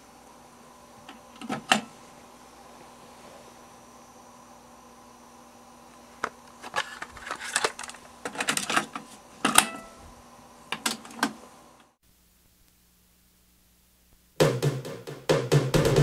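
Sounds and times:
plastic cassette clicks and clacks: 6.2 - 9.7, 10.7 - 11.4.

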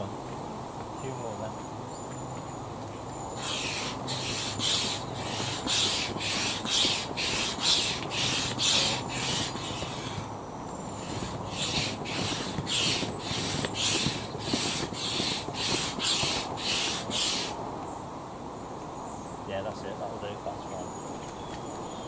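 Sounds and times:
air rushing through hand pump: 3.3 - 17.6.

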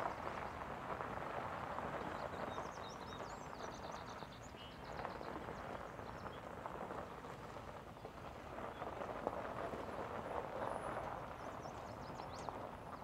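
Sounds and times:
small birds chirping: 1.9 - 6.5, 10.9 - 13.0.

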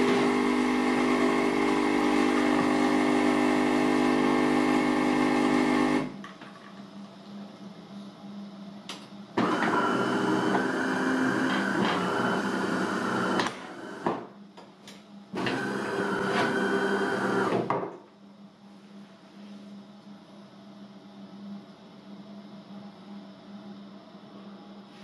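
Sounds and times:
coffee machine motor running: 0.0 - 6.2, 9.4 - 14.1, 15.3 - 17.7.

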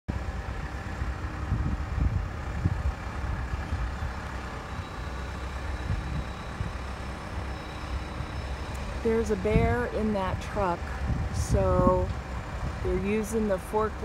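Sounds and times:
vehicle engine low rumble: 0.1 - 14.0.

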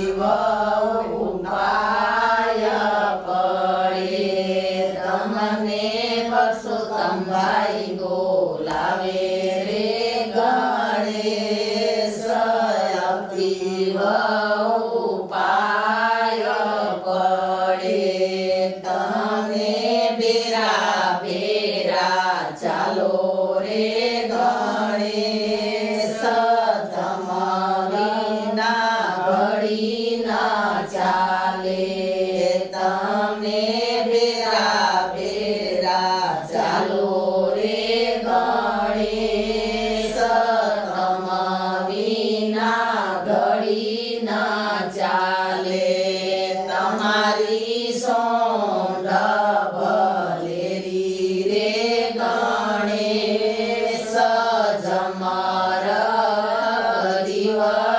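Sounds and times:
women singing in unison: 0.0 - 57.9.

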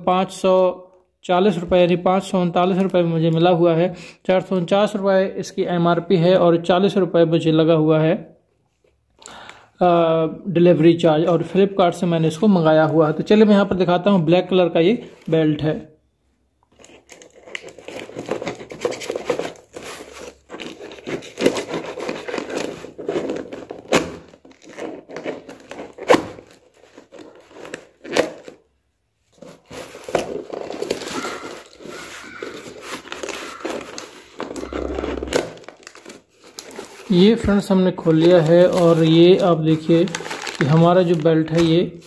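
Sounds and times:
plastic wrapping crinkling: 16.6 - 42.0
knife cutting packing tape: 16.8 - 28.6, 29.5 - 37.1.

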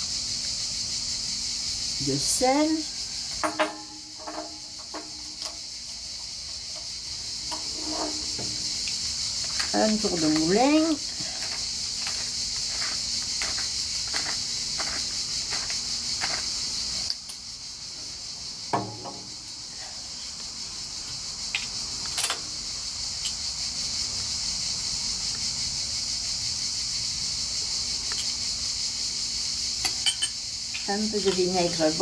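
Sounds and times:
insects chirring: 0.0 - 32.0
pepper mill grinding: 5.3 - 17.0
light clink: 29.8 - 30.4.

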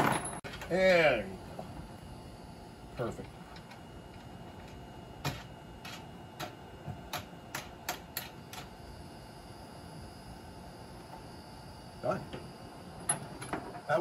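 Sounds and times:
tools and hardware clicking and knocking: 13.1 - 13.8.

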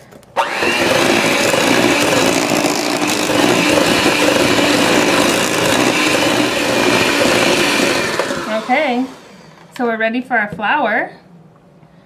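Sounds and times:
electric hand mixer running: 0.4 - 9.6.

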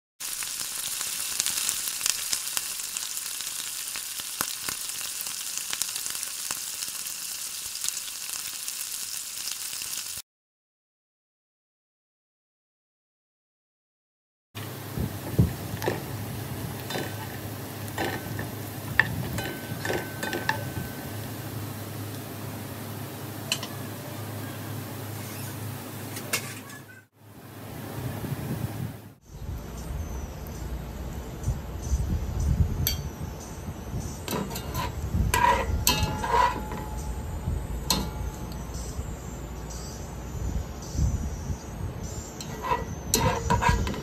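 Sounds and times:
onions sizzling in oil: 0.2 - 10.2, 14.6 - 26.1, 31.7 - 44.0
wire skimmer clinking on metal: 16.8 - 21.3, 34.2 - 39.0, 42.2 - 44.0
low steady rumble: 27.4 - 42.0
spatula scraping a pot: 34.3 - 37.0, 42.2 - 44.0.

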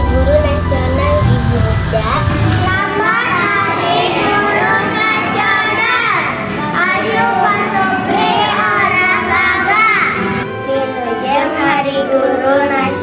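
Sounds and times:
background music: 0.0 - 13.0
children singing: 0.0 - 13.0.

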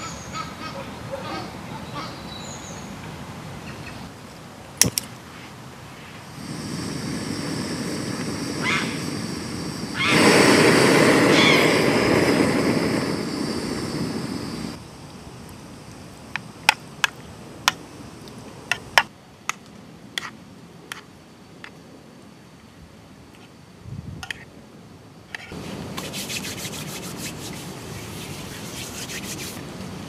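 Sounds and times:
gas stove burner hissing: 6.3 - 14.8.

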